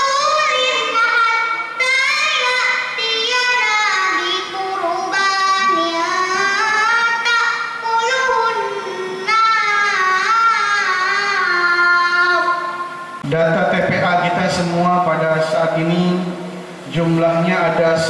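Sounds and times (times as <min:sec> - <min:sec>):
girl chanting into a microphone: 0:00.0 - 0:12.8.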